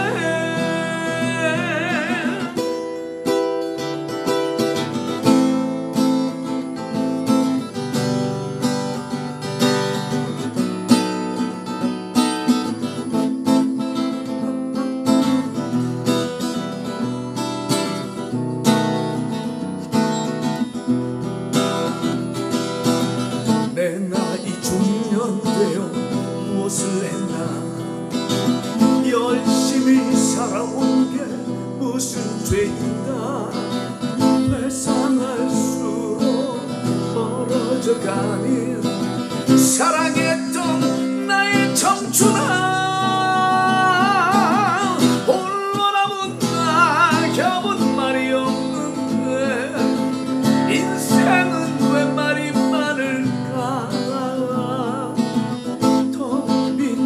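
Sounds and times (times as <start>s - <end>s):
man singing a slow ballad: 0.0s - 3.1s, 23.5s - 57.0s
acoustic guitar strummed: 0.0s - 57.0s.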